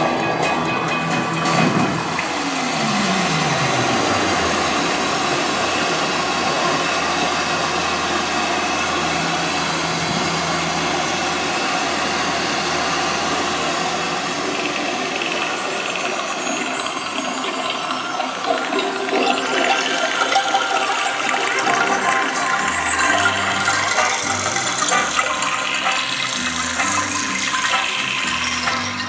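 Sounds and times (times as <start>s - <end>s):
tone sliding down: 0.0s - 16.6s
low drone: 0.0s - 29.0s.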